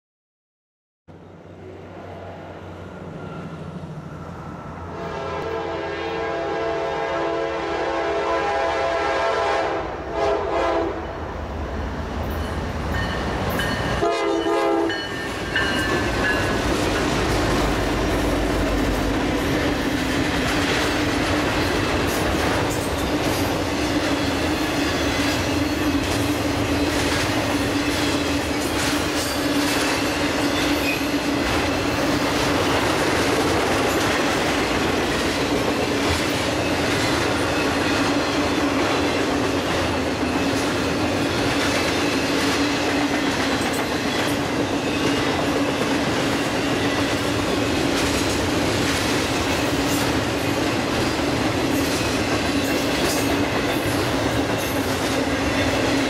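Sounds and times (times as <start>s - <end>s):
steady high tone: 1.7s - 5.1s
train air horn: 4.9s - 11.1s, 14.0s - 15.1s
train wheels clattering on rail: 12.2s - 56.0s.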